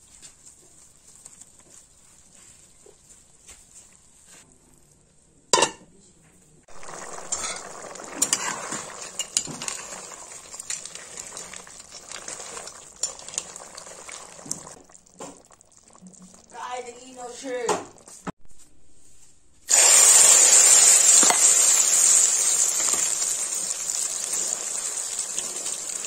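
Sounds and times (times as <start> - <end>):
food sizzling in a pan: 6.7 - 18.3, 19.7 - 26.0
metal spoon scraping a pan: 6.8 - 14.5.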